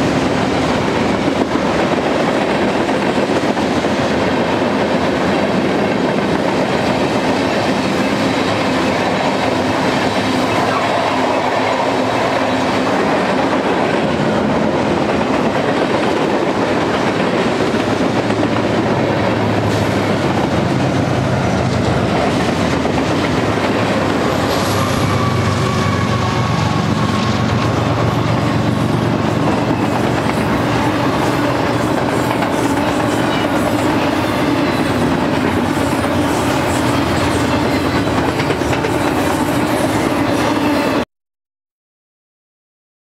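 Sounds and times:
freight train rumbling past: 0.0 - 41.0
wheels clacking over rail joints: 12.0 - 40.8.

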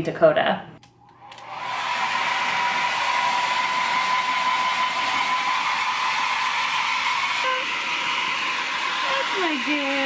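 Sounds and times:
hair dryer blowing: 1.1 - 10.0.

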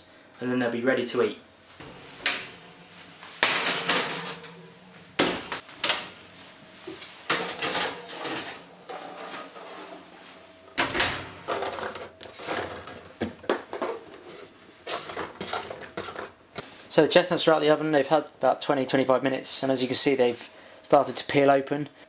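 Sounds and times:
oven door opening and shutting: 1.8 - 6.3, 7.3 - 9.7, 10.8 - 13.1.

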